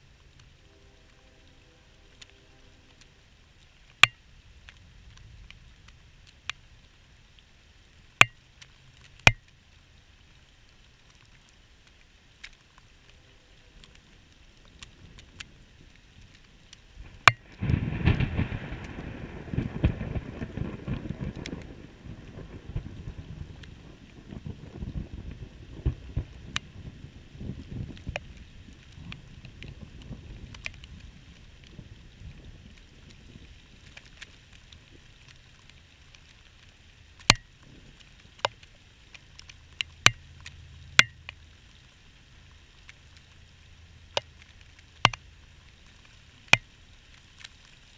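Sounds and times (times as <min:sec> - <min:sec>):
thunder crack and rumble: 0:17.0 - 0:33.8
sharp ticks: 0:39.4 - 0:41.4.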